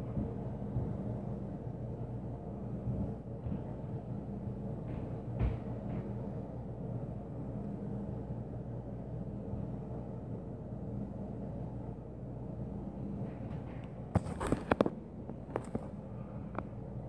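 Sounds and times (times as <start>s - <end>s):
low indoor hum: 0.0s - 17.0s.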